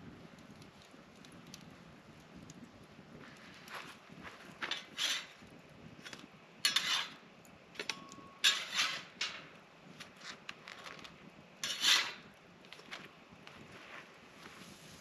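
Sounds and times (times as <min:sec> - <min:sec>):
metal utensil scraping grill grate: 0:04.6 - 0:05.4, 0:06.0 - 0:11.0, 0:11.6 - 0:12.3.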